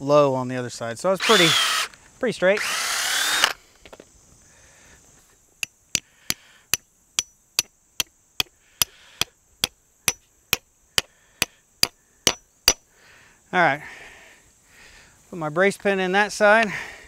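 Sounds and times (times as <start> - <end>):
hammer striking metal: 12.3 - 12.8.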